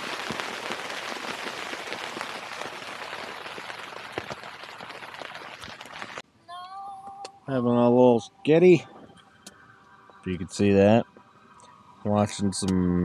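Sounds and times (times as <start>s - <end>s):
rain and hail on tent canvas: 0.0s - 6.2s.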